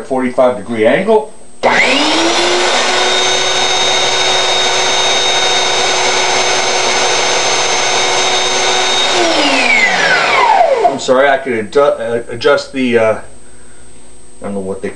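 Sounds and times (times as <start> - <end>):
belt sander running: 1.6 - 11.4.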